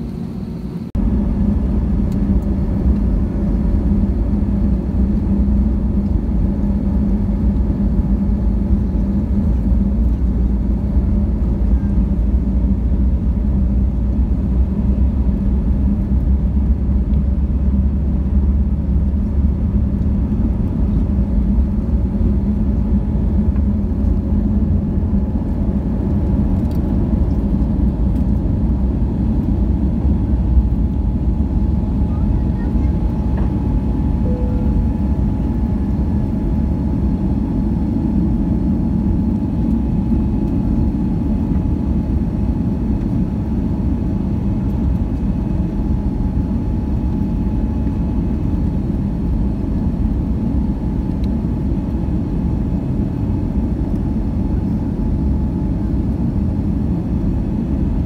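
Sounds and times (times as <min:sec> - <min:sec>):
runway rumble: 0:00.0 - 0:48.2
jet engines at takeoff thrust: 0:00.0 - 0:58.0.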